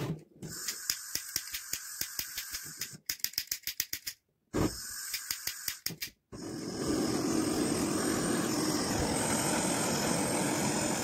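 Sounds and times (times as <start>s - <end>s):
gas hissing from blowtorch: 4.6s - 5.3s, 6.4s - 11.0s
lighter clicking: 5.0s - 6.1s.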